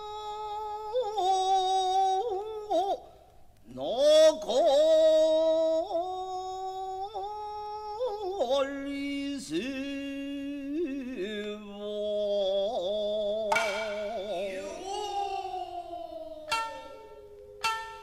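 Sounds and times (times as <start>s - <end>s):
stylized sing-song voice: 0.0s - 18.0s
sharp wooden clack: 13.5s - 14.2s.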